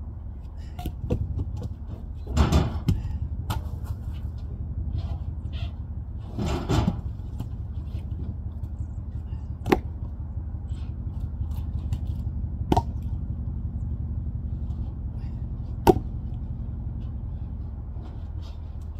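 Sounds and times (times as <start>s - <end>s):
steady low rumble: 0.0s - 18.9s
firewood scraping: 0.6s - 12.3s
logs knocking onto pile: 1.0s - 4.0s, 6.3s - 7.6s, 15.8s - 16.2s.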